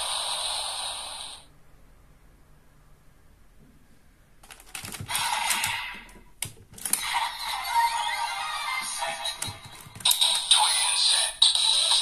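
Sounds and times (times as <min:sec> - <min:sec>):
electronic toy sound: 0:05.1 - 0:06.1, 0:07.0 - 0:12.0.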